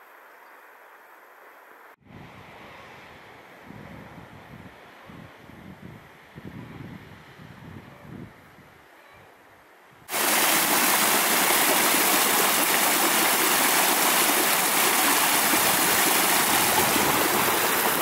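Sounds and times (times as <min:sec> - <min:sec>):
stream splashing over rocks: 0:10.1 - 0:18.0.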